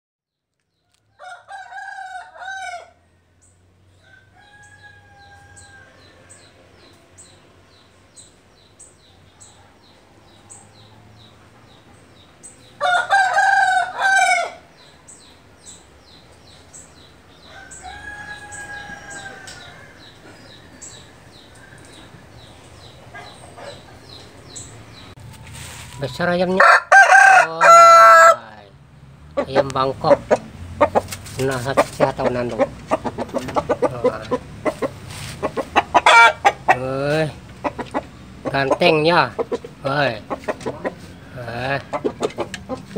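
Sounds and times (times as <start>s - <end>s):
distant rooster crows: 0.9s - 7.3s, 12.8s - 14.9s, 17.3s - 23.8s, 24.9s - 28.6s, 36.0s - 36.6s
rooster crowing: 1.0s - 3.3s, 4.0s - 6.8s, 12.8s - 14.7s, 17.4s - 21.8s, 26.5s - 28.6s, 36.0s - 36.5s.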